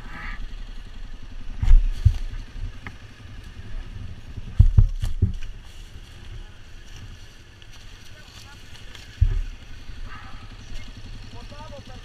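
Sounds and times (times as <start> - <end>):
atv engine idling: 0.0 - 12.0
heavy thumps on microphone: 4.5 - 5.5, 9.2 - 9.5.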